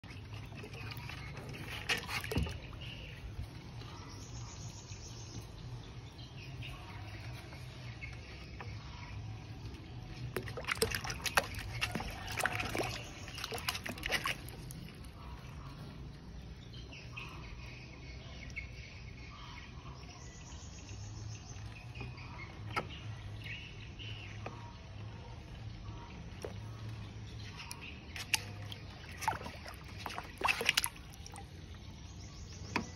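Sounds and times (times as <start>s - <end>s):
sharp splashes and knocks: 0.0s - 3.0s, 10.2s - 14.9s, 27.6s - 31.6s
water splashing and sloshing: 0.0s - 20.1s, 21.2s - 32.9s.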